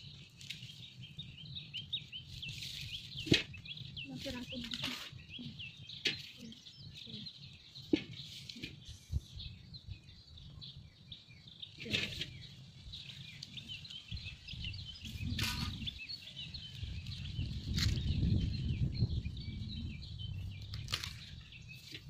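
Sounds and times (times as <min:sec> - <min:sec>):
small birds chirping: 0:00.0 - 0:22.0
wind rumble on microphone: 0:00.0 - 0:22.0
corn plants snapping and rustling: 0:02.6 - 0:03.6, 0:04.2 - 0:05.2, 0:15.2 - 0:16.0, 0:17.1 - 0:18.1, 0:20.6 - 0:22.0.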